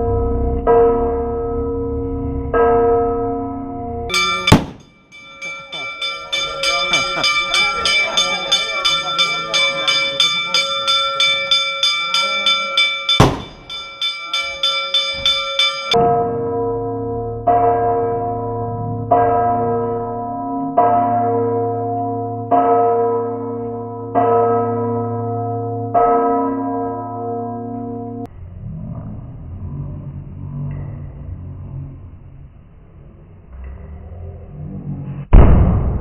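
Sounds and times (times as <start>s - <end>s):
church bells ringing: 0.0s - 28.3s
deep bell strokes: 0.0s - 34.6s.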